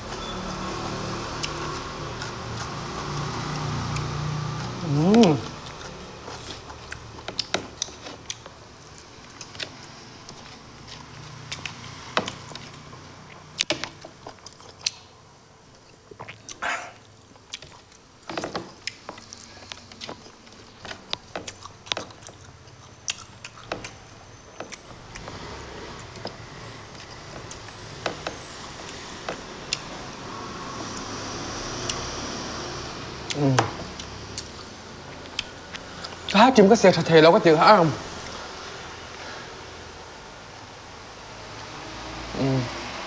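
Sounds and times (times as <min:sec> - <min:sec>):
chewing and lip smacks: 0:01.3 - 0:15.2, 0:15.8 - 0:24.0, 0:33.2 - 0:36.4.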